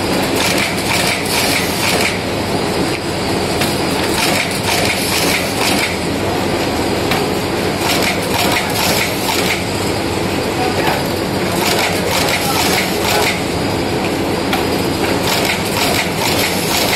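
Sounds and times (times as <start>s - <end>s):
stitching machine clattering: 0.2s - 2.3s, 3.5s - 6.1s, 7.1s - 9.8s, 10.9s - 13.6s, 14.5s - 16.9s.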